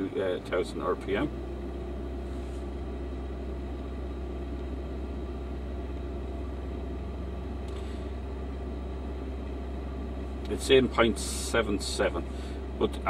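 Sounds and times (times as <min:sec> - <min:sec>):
car engine held steady: 0:00.0 - 0:13.0.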